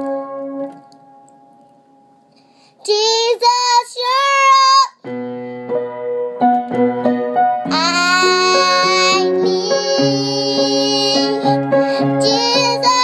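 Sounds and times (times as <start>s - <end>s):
electric keyboard chords: 0.0s - 2.1s, 5.1s - 13.0s
girl singing gospel: 2.8s - 5.0s, 7.7s - 13.0s.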